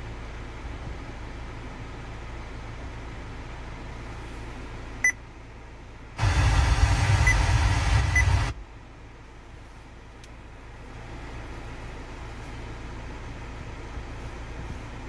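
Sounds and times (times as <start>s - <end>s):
low steady cabin hum: 0.0s - 15.0s
radio static: 6.2s - 8.6s.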